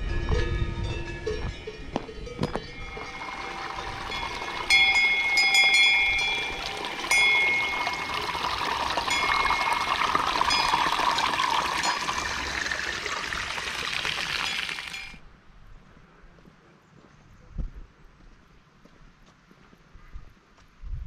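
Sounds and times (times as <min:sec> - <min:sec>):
cowbells clanking: 0:00.0 - 0:15.2
mountain stream rushing: 0:02.8 - 0:15.2.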